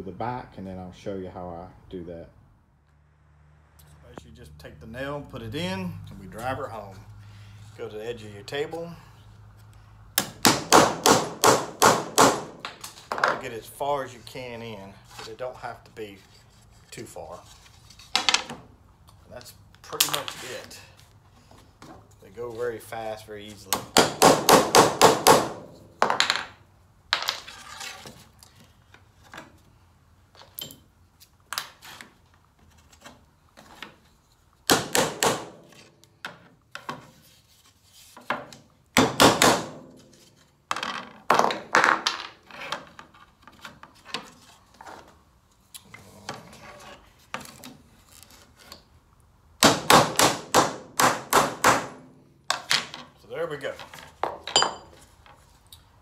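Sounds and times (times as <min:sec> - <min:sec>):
hammer tapping nails: 0:10.2 - 0:12.9, 0:23.7 - 0:26.3.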